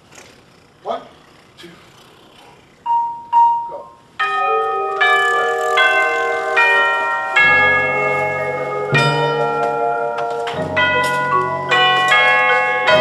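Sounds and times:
brass horn line playing chords: 0:04.3 - 0:13.0
low bass notes: 0:05.0 - 0:12.2.

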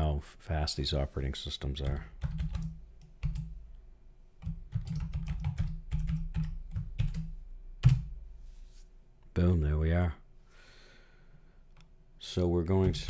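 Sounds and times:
keyboard keys clicking: 0:01.8 - 0:03.5, 0:04.4 - 0:08.1.

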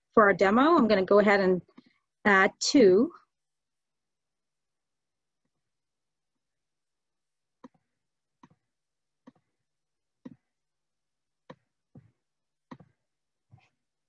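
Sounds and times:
computer mouse clicking: 0:12.7 - 0:13.0.

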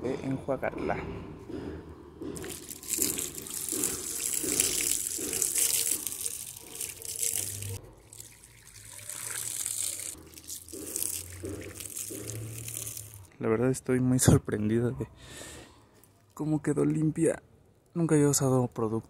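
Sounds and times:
water pouring and splashing: 0:02.4 - 0:13.3.

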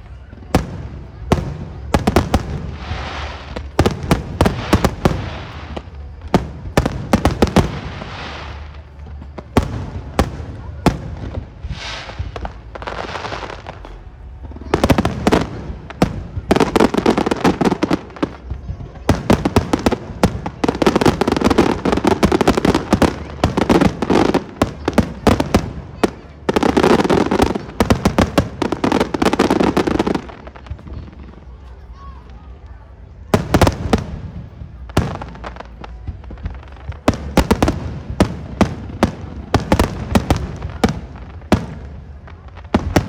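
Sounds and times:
fireworks hissing rush: 0:00.0 - 0:31.6
fireworks bursting: 0:00.0 - 0:43.0.

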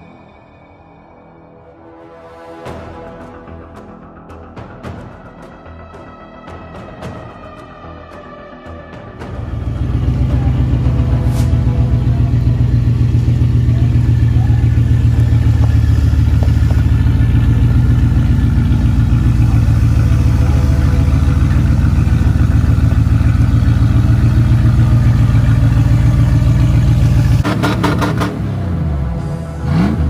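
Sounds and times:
truck engine running: 0:09.2 - 0:30.0.

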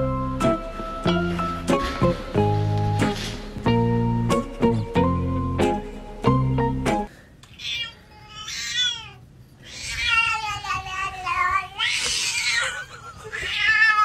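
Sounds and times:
cat meowing and yowling: 0:07.6 - 0:14.0.

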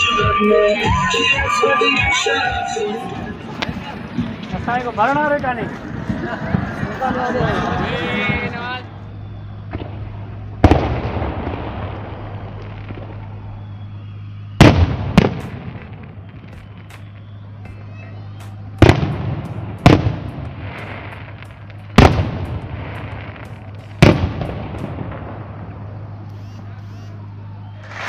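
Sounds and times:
fireworks bursting with echoing rumble: 0:00.0 - 0:26.3, 0:27.8 - 0:28.0
fireworks crackling: 0:00.0 - 0:27.2, 0:27.8 - 0:28.0.

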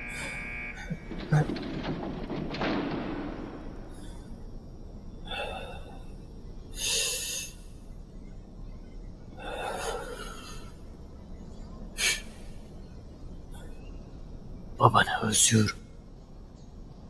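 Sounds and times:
faint low hum: 0:00.0 - 0:17.0
man breathing heavily: 0:05.3 - 0:07.8, 0:09.4 - 0:10.8.

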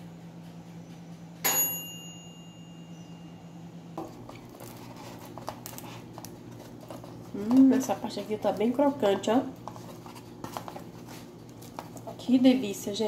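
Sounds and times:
metallic clink with ringing tone: 0:01.4 - 0:03.4.

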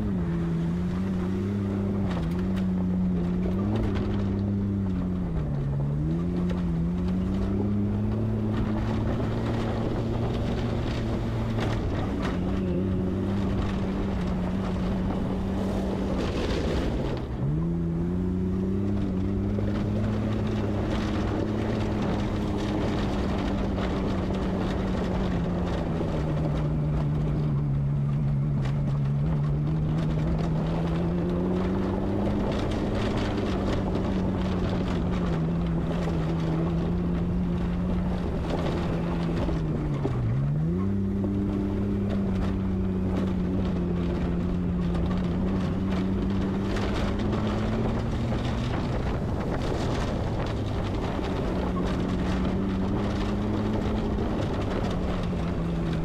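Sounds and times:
off-road vehicle engine: 0:00.0 - 0:56.0
tyres on gravel: 0:00.0 - 0:56.0.

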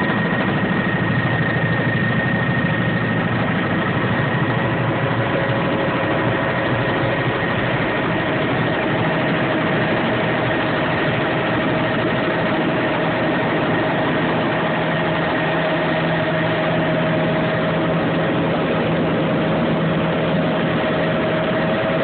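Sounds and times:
helicopter engine and rotor drone: 0:00.0 - 0:22.0.

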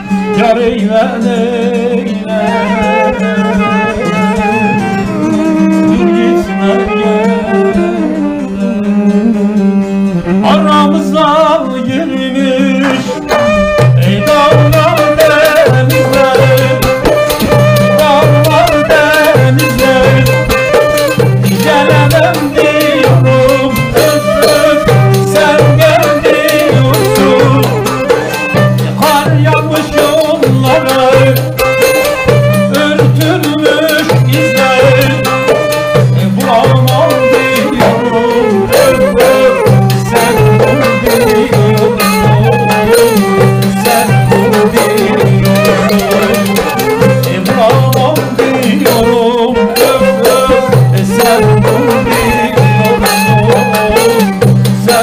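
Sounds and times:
folk ensemble playing: 0:00.0 - 0:55.0
low drum beat: 0:02.8 - 0:55.0.

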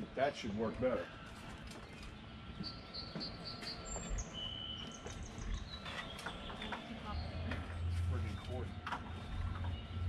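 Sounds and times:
bird chirping: 0:01.6 - 0:08.8.

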